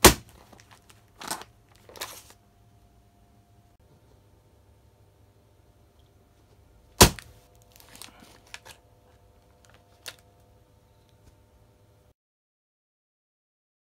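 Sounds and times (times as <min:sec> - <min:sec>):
stake striking wooden board: 0:07.0 - 0:07.3.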